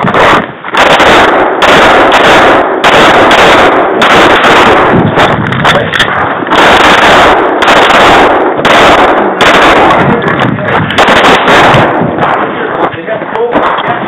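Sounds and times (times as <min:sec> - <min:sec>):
pistol shots: 0:00.0 - 0:14.0.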